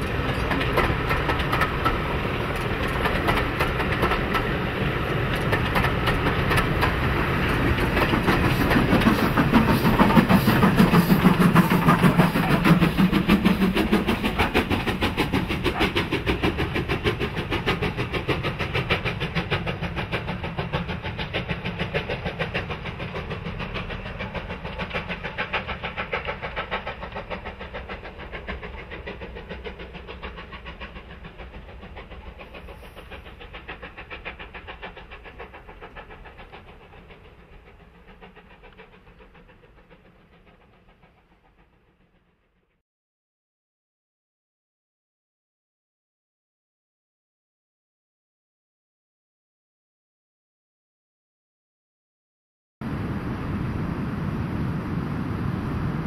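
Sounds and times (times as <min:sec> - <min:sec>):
steam locomotive exhaust beats: 0:00.0 - 0:42.7
train running: 0:00.0 - 0:42.7.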